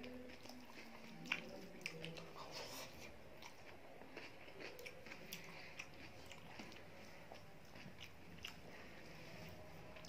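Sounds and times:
wet chewing clicks and smacks: 0:03.4 - 0:08.6.

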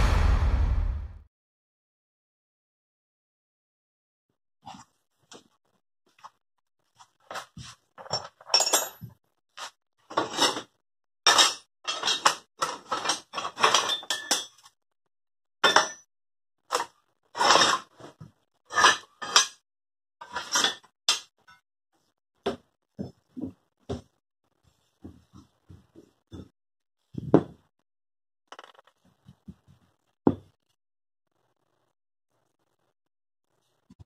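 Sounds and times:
scrap metal clanking and scraping: 0:17.4 - 0:19.6.

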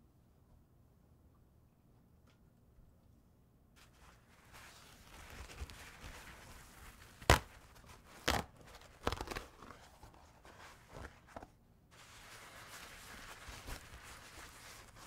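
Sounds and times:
paper crackles: 0:03.8 - 0:15.0
paper towel rustling: 0:03.8 - 0:15.0.

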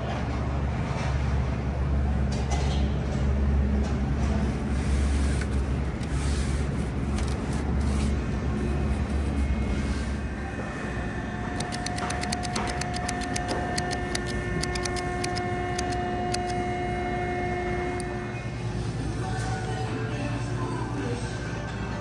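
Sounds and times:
steady humming tones: 0:00.2 - 0:22.0
tally counter clicking: 0:11.6 - 0:16.6.

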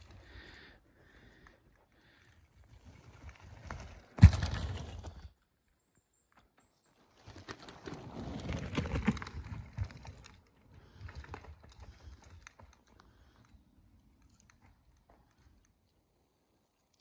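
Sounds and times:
bike tyres crunching on twigs: 0:02.6 - 0:05.4, 0:06.6 - 0:12.8.

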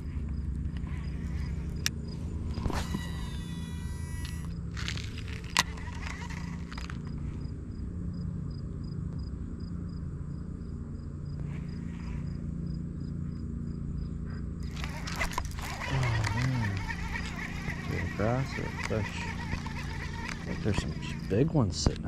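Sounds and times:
fishing reel ticking: 0:02.6 - 0:07.2, 0:14.6 - 0:21.5.

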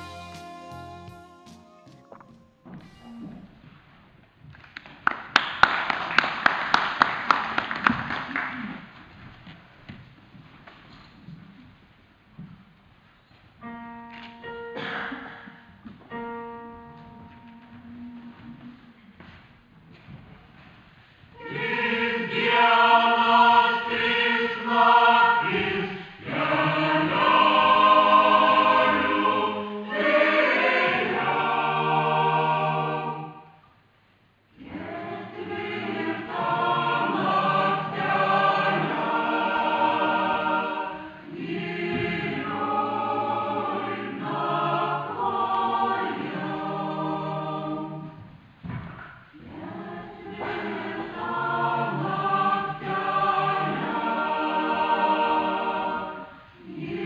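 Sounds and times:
mixed choir singing: 0:00.0 - 0:01.7, 0:21.3 - 0:33.6, 0:34.6 - 0:48.4, 0:49.3 - 0:57.0.

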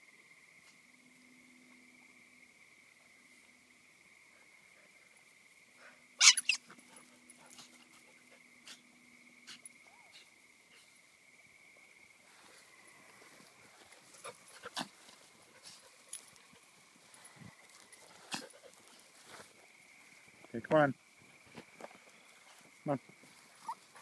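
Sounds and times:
small dog yelping: 0:06.2 - 0:07.0, 0:23.6 - 0:24.0.

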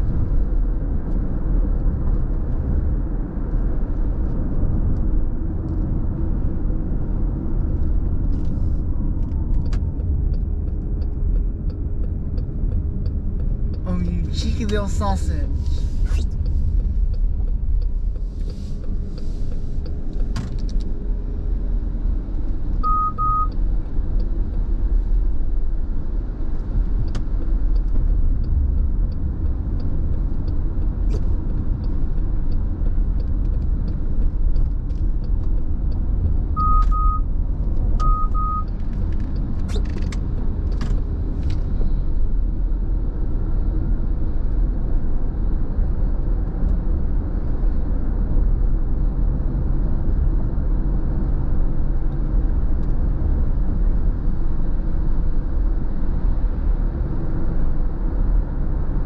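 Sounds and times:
car road and engine rumble: 0:00.0 - 0:59.0
short double beeps: 0:22.8 - 0:23.6, 0:36.6 - 0:37.3, 0:38.0 - 0:38.7.

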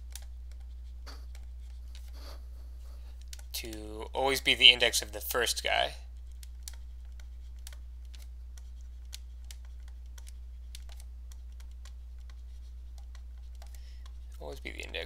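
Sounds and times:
stylus clicking on tablet screen: 0:00.0 - 0:02.2, 0:06.2 - 0:14.4
low electrical hum: 0:00.0 - 0:15.0.

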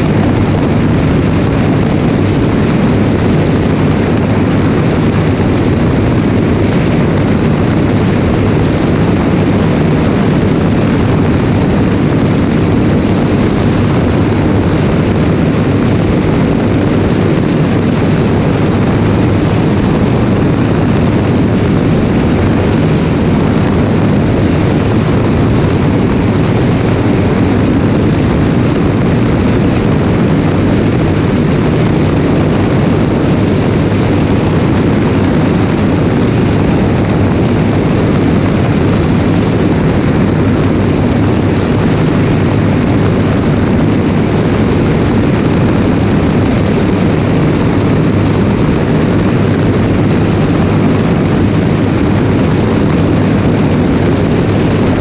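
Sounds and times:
propeller aircraft engine drone: 0:00.0 - 0:55.0
wind rushing over microphone: 0:00.0 - 0:55.0.

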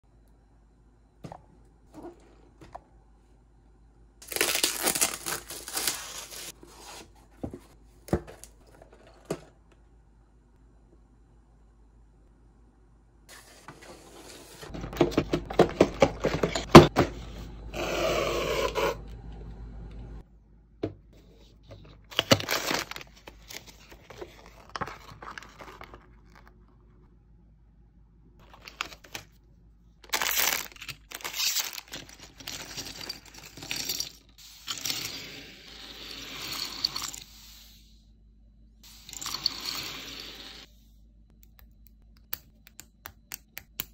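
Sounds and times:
packaging rustling and crinkling: 0:04.2 - 0:08.6, 0:22.1 - 0:26.7, 0:30.1 - 0:33.5.

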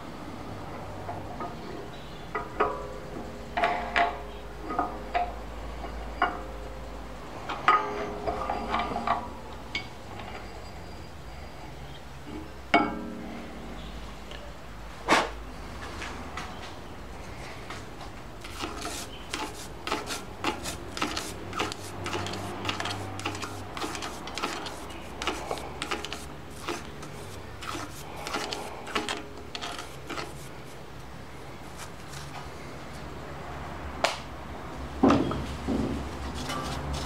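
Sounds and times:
metal rod scraping metal: 0:18.4 - 0:30.9.

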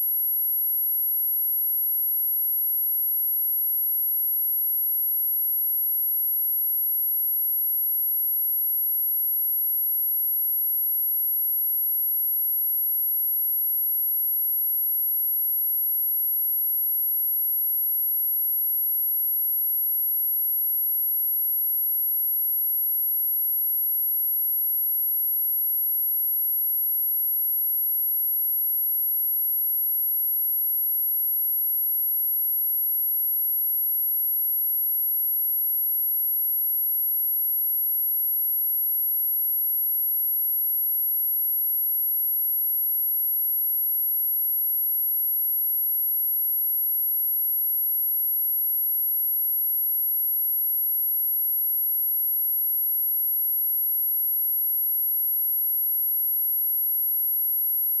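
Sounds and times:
high-pitched sine test tone: 0:54.2 - 0:58.0.

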